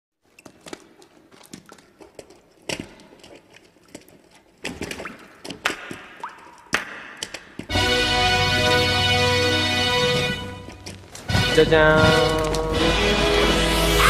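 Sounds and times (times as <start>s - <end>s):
footsteps on wet concrete: 0.2s - 7.9s, 10.1s - 13.0s.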